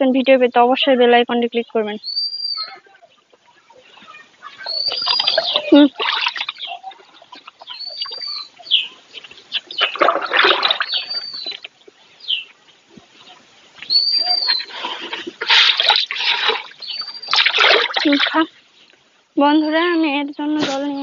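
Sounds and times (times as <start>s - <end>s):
bird whistling: 2.0s - 2.8s, 4.1s - 5.9s, 7.6s - 10.0s, 10.7s - 12.5s, 13.8s - 14.8s, 16.8s - 17.5s
cows slurping water: 3.6s - 12.1s, 14.2s - 18.6s.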